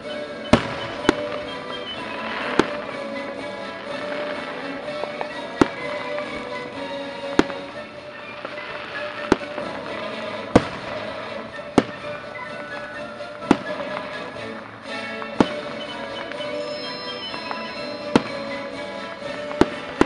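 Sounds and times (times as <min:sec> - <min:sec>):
music playing on a radio: 0:00.0 - 0:20.0
firework shells bursting: 0:00.5 - 0:20.0.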